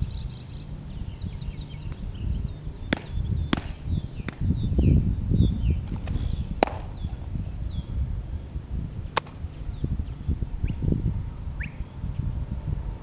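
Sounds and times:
small birds chirping: 0:00.0 - 0:13.0
wind rumbling on microphone: 0:00.0 - 0:13.0
sharp snaps: 0:02.9 - 0:04.4, 0:05.9 - 0:07.0, 0:09.1 - 0:09.4.

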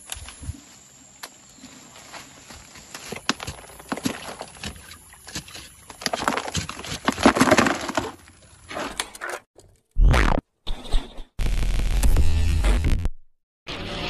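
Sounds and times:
leaves and twigs rustling: 0:00.0 - 0:09.0
gravel clattering in a plastic pan: 0:05.8 - 0:08.4.

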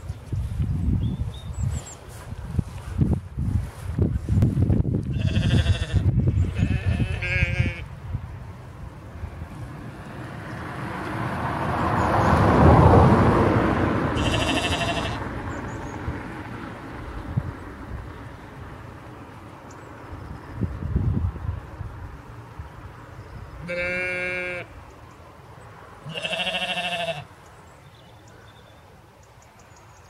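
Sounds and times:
sheep bleating: 0:05.1 - 0:07.9, 0:14.2 - 0:15.2, 0:23.6 - 0:24.7, 0:26.0 - 0:27.3.

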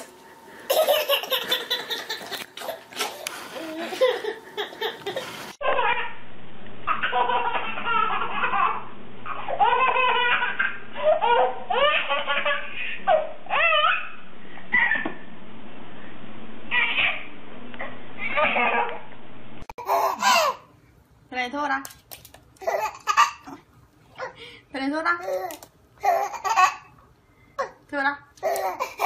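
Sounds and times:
toddler belly laughing: 0:00.7 - 0:06.1, 0:06.9 - 0:14.1, 0:22.6 - 0:23.6, 0:25.2 - 0:26.9
baby laughing squeals: 0:06.9 - 0:14.2, 0:16.7 - 0:17.3.

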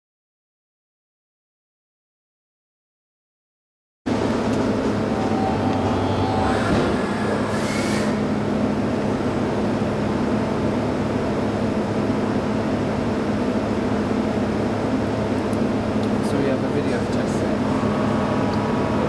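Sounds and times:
short rising whine: 0:04.1 - 0:09.7, 0:17.6 - 0:19.0
machine low hum: 0:04.1 - 0:19.0.

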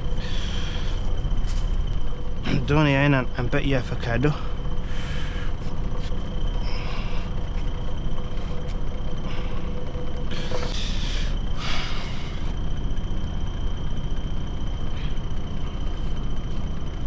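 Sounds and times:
truck engine idling: 0:00.0 - 0:17.0.

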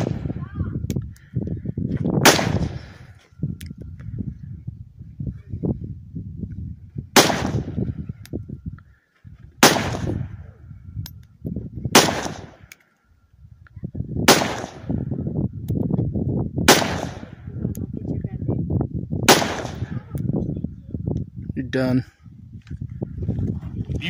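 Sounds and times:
rifle shots: 0:00.0 - 0:00.3, 0:02.2 - 0:02.9, 0:07.2 - 0:07.8, 0:09.6 - 0:10.3, 0:11.9 - 0:12.6, 0:14.2 - 0:15.0, 0:16.7 - 0:17.4, 0:19.3 - 0:20.1.

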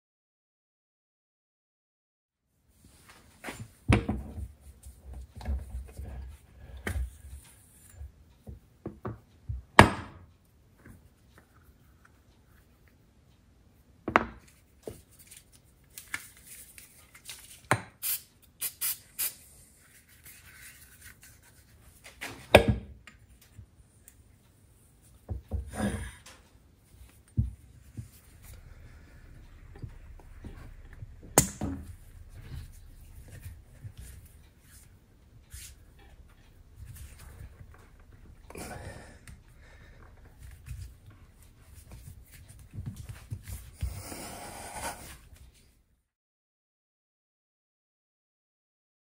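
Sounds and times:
spray can hissing: 0:18.0 - 0:19.4.

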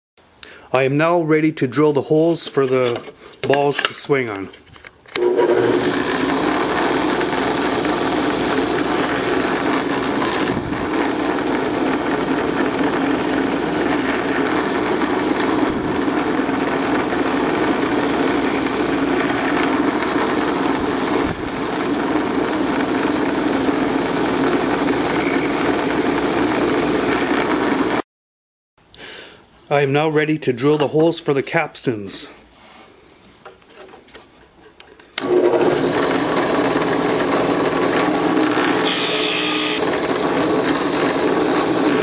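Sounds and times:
drill bit drilling into wood: 0:05.2 - 0:28.0, 0:35.2 - 0:42.0
drill press motor hum: 0:05.2 - 0:28.0, 0:35.2 - 0:42.0.

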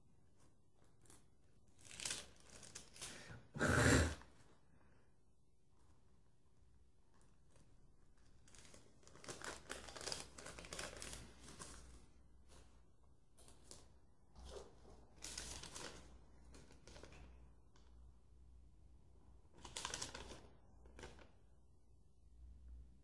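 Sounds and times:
paper crinkling and rustling: 0:00.2 - 0:03.4, 0:05.6 - 0:17.8, 0:19.5 - 0:21.4.

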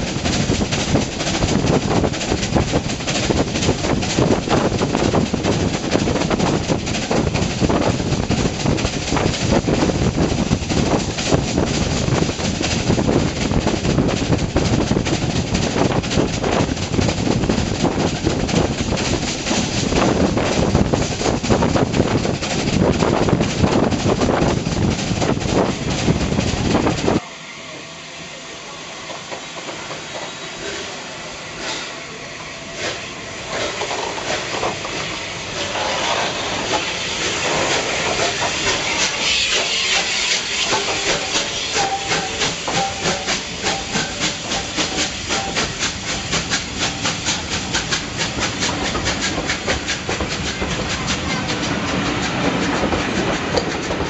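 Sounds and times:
train wheels rumbling and clattering: 0:00.0 - 0:27.2, 0:29.0 - 0:54.0.

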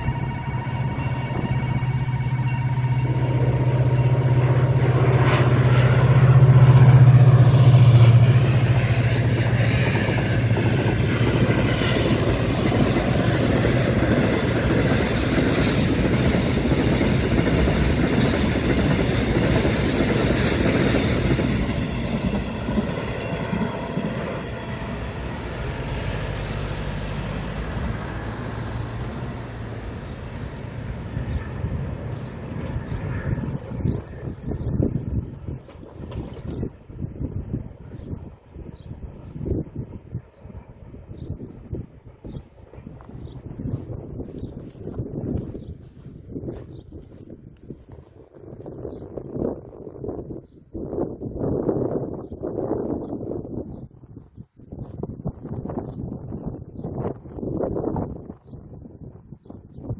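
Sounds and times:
diesel locomotive engine hum: 0:00.0 - 0:59.1
train wheels clattering on rails: 0:07.0 - 0:32.8.

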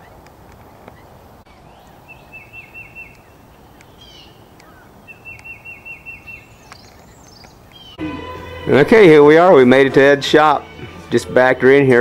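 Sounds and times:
faint outdoor background noise: 0:00.0 - 0:12.0
songbird singing whistled notes: 0:00.9 - 0:08.0.

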